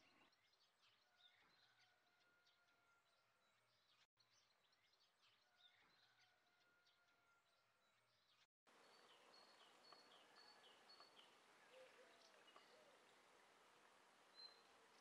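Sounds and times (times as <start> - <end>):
birds chirping: 7.9 - 15.0.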